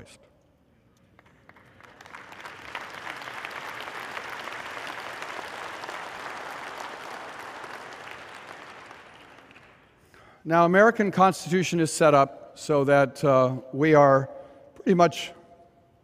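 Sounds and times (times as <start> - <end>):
audience applauding: 1.2 - 9.9.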